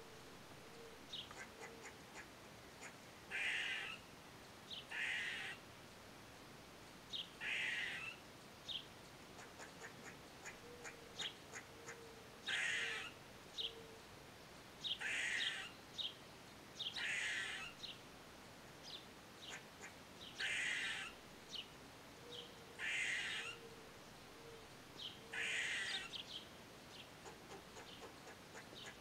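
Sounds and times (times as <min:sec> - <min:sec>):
squirrel rasping alarm calls: 0:01.1 - 0:04.1, 0:04.7 - 0:05.6, 0:07.4 - 0:08.2, 0:09.4 - 0:13.7, 0:14.8 - 0:15.8, 0:16.8 - 0:18.0, 0:19.4 - 0:21.2, 0:22.8 - 0:23.7, 0:25.0 - 0:26.3, 0:27.2 - 0:29.0.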